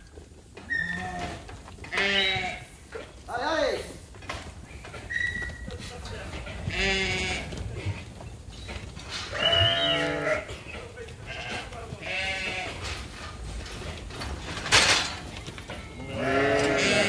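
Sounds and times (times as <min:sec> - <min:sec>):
sheep bleating: 0:00.7 - 0:02.7, 0:06.6 - 0:07.9, 0:09.3 - 0:12.9, 0:15.8 - 0:17.0.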